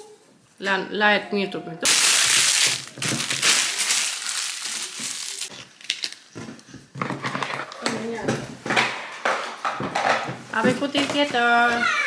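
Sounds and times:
packaging crumpled by hand: 1.9s - 6.2s.

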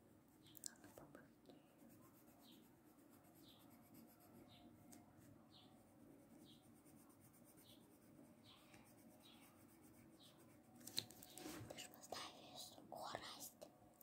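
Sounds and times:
pencil scratching on paper: 1.8s - 4.6s, 5.2s - 13.4s.

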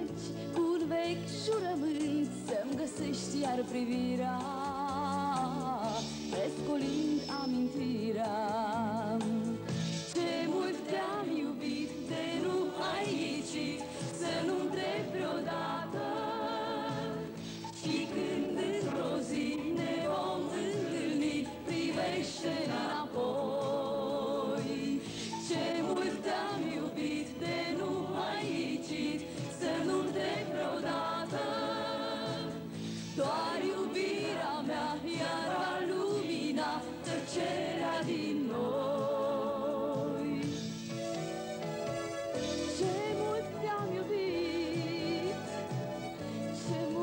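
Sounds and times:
woman singing with vibrato: 0.0s - 9.6s, 42.8s - 45.5s, 46.6s - 47.0s
backing vocal group: 10.1s - 40.7s.

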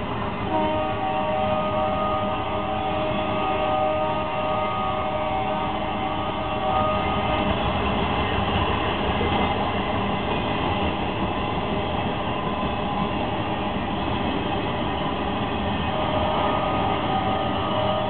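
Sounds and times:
train wheels on rails: 0.0s - 18.0s.

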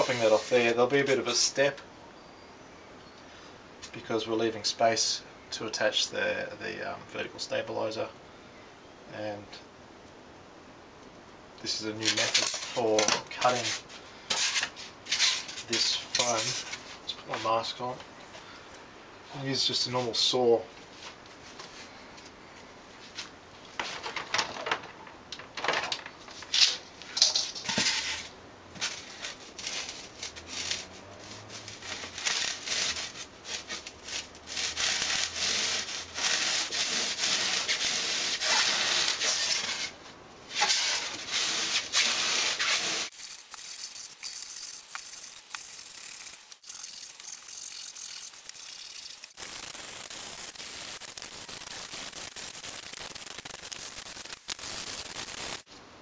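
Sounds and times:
rubbing of foam being handled: 0.0s - 1.2s, 12.0s - 17.8s, 27.8s - 43.4s
hand saw cutting foam: 30.5s - 39.9s, 40.5s - 43.2s.

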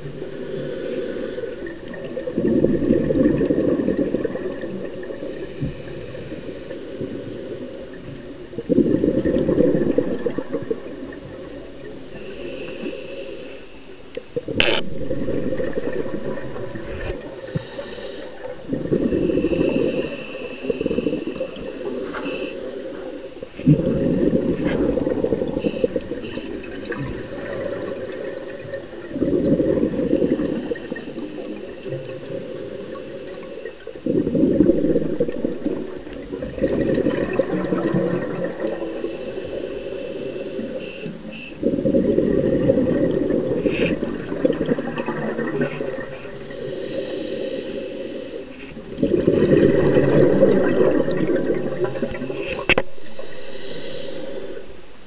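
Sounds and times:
diver regulator breathing: 0.1s - 2.2s, 5.1s - 8.4s, 11.0s - 55.0s
bubbles rushing: 2.0s - 5.2s, 8.6s - 11.6s, 14.5s - 17.4s, 23.6s - 27.9s, 29.0s - 31.7s, 34.1s - 38.8s, 41.6s - 46.1s, 49.0s - 52.6s.

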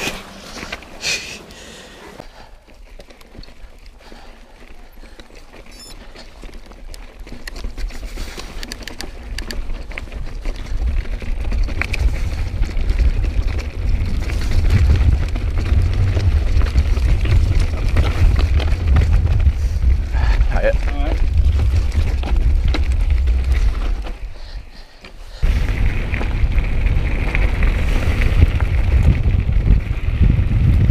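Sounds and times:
bike clattering over stones: 2.6s - 30.9s
wind buffeting microphone: 9.4s - 24.5s, 25.4s - 30.9s.

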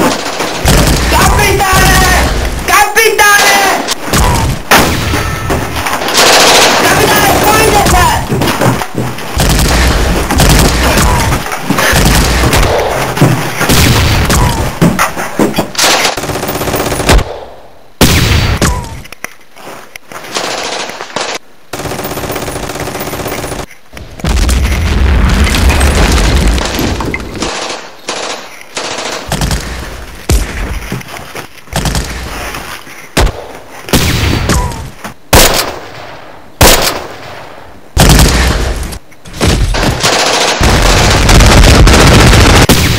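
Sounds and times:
single gunshots: 3.4s - 5.5s, 17.0s - 18.8s, 33.2s - 38.8s, 39.4s - 42.9s
automatic gunfire bursts: 6.0s - 7.9s, 26.1s - 29.6s, 39.8s - 42.9s.

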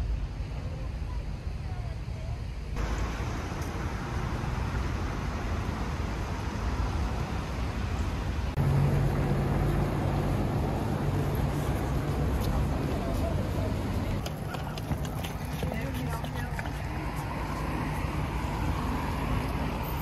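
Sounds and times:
low engine drone: 0.0s - 14.2s
passing traffic rush: 2.7s - 20.0s.

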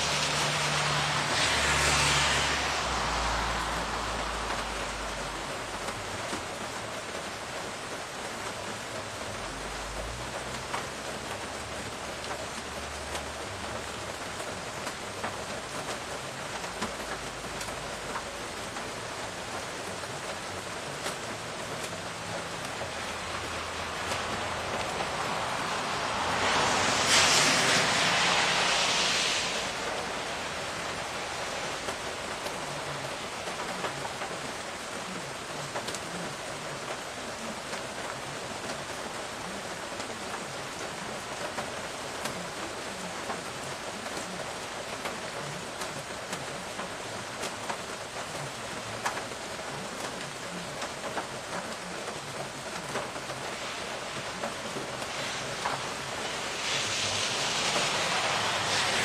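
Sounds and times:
steady rain falling: 0.0s - 59.0s
louder hiss: 21.4s - 34.2s, 52.6s - 59.0s.

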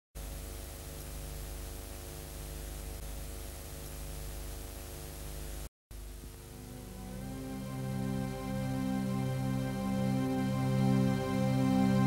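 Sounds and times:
static hiss: 0.2s - 9.8s
low electrical hum: 0.2s - 12.0s.

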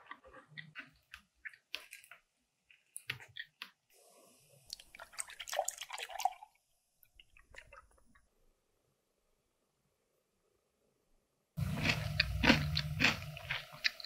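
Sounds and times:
milk pouring into bowl: 4.9s - 6.6s.

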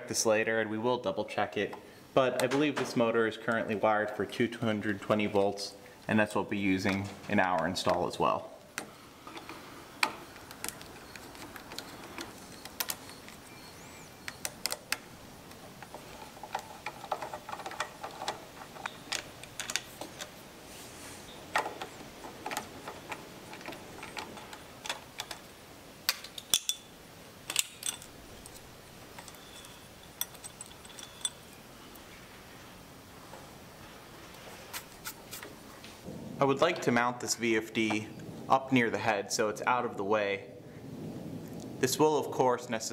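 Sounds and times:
small metal parts clinking: 9.2s - 20.4s, 21.5s - 25.5s, 26.1s - 31.7s.

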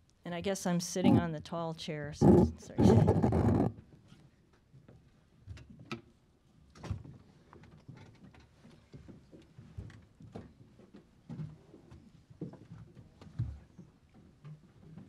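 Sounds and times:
chairs and objects moving: 1.0s - 1.3s, 2.2s - 3.7s
faint knocks and clicks: 2.2s - 3.7s.

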